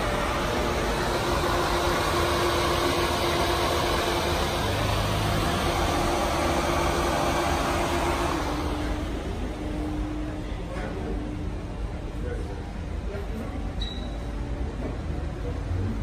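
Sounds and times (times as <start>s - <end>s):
car engine idling: 0.0s - 12.2s.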